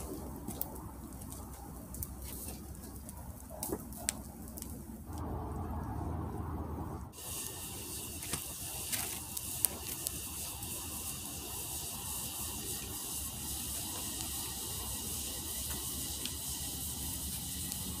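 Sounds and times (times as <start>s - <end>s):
woodland ambience hiss: 7.1s - 18.0s.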